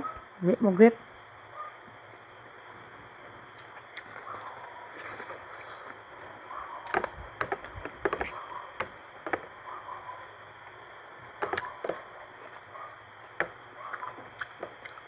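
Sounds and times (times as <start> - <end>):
faint background hum: 0.0 - 15.0
wet chewing and lip smacks: 3.5 - 6.0, 13.8 - 15.0.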